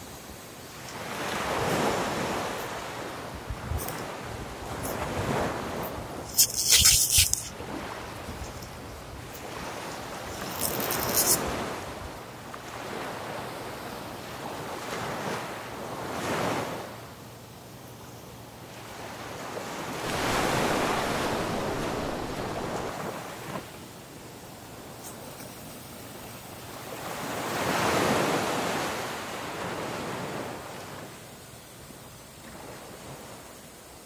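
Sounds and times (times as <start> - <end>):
sea surf washing up beach: 0.0 - 17.1, 18.6 - 34.0
wind on microphone: 3.2 - 12.2, 20.0 - 23.4
sharp rustle: 4.7 - 7.6, 8.2 - 11.7, 20.1 - 23.1.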